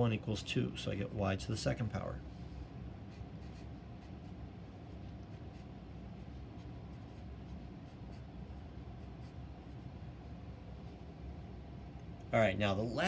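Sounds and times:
steady low hum: 0:00.0 - 0:13.0
marker writing on paper: 0:03.1 - 0:09.9.

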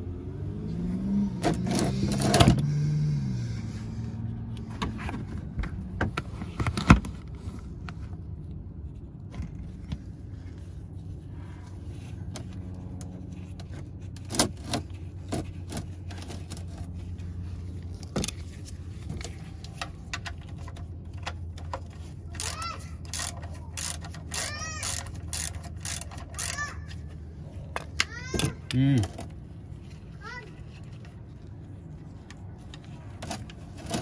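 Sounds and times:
tools clicking and knocking: 0:19.1 - 0:27.0.

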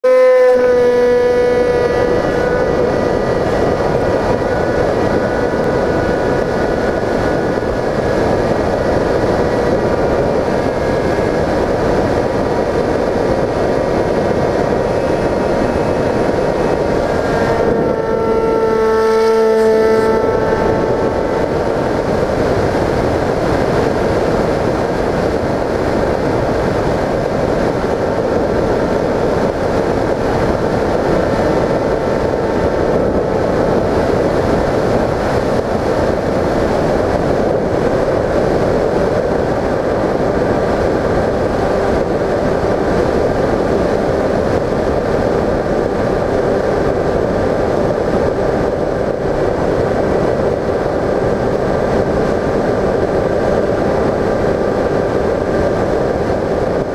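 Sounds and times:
electric motor whine: 0:00.1 - 0:24.5
wind rushing: 0:00.2 - 0:56.9.

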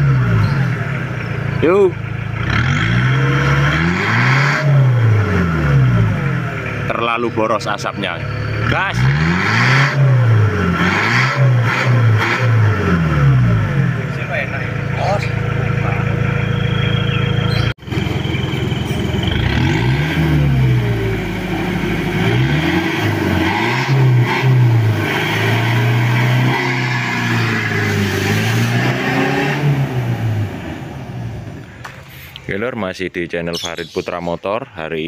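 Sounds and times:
diesel engine idling: 0:00.0 - 0:03.7, 0:04.8 - 0:09.2, 0:12.6 - 0:23.4
truck engine revving: 0:00.0 - 0:32.7.

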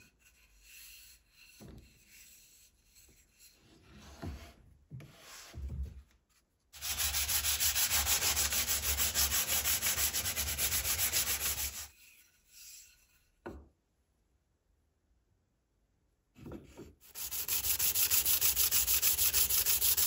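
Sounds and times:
sandpaper rasping on wood: 0:06.8 - 0:11.9, 0:17.1 - 0:20.0.

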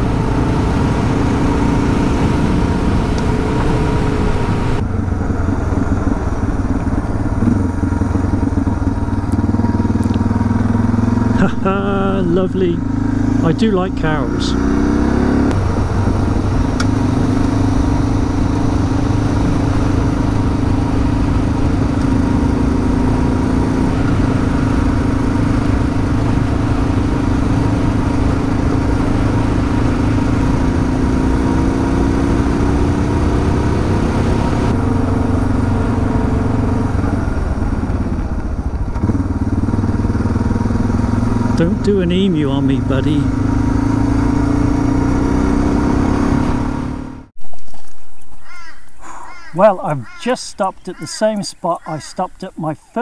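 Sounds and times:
motorcycle engine running: 0:00.0 - 0:47.3.

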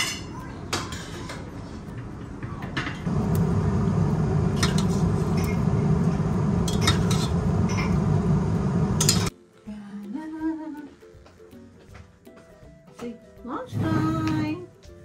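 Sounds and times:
low rumble: 0:03.1 - 0:09.3
metal pot clinking: 0:04.6 - 0:05.8, 0:06.6 - 0:08.1, 0:09.0 - 0:09.3.

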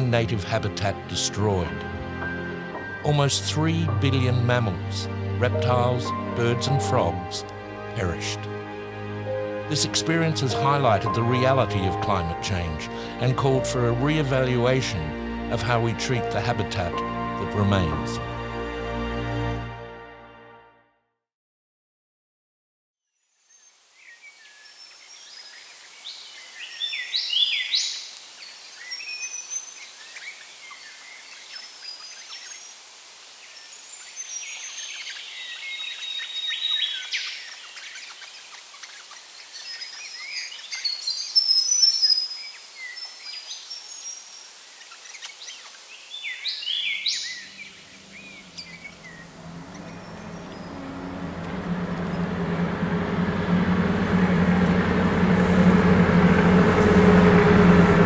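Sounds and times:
birds chirping and whistling: 0:24.2 - 0:28.1, 0:33.5 - 0:56.8
low engine hum: 0:47.2 - 0:58.0.

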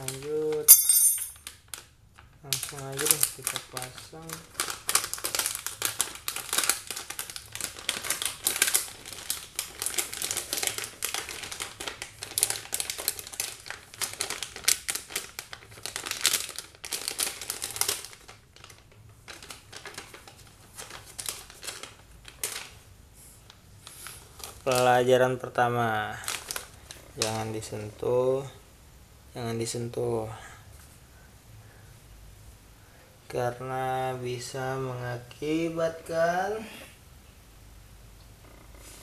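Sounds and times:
plastic crinkling and clicking: 0:00.0 - 0:00.7, 0:01.4 - 0:22.8, 0:26.2 - 0:27.4.

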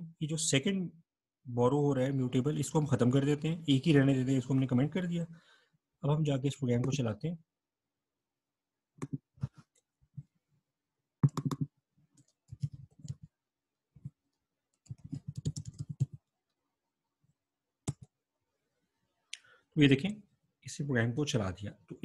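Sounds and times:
keyboard keys clicking: 0:11.2 - 0:13.3, 0:14.8 - 0:16.2.

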